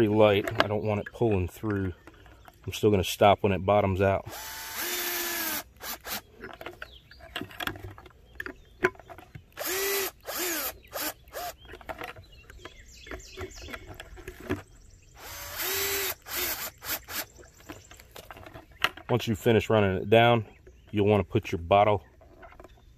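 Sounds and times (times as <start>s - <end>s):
cordless drill running: 4.2s - 6.3s, 9.6s - 11.6s, 15.2s - 17.3s.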